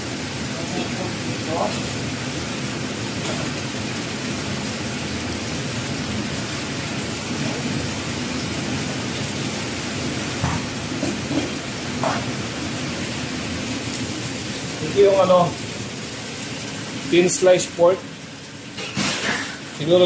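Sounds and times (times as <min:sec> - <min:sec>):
food sizzling in a frying pan: 0:00.0 - 0:20.0.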